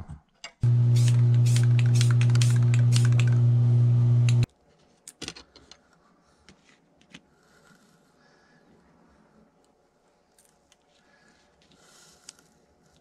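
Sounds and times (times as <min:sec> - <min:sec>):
loud electrical hum: 0:00.6 - 0:04.5
scratchy clicks: 0:01.0 - 0:03.4.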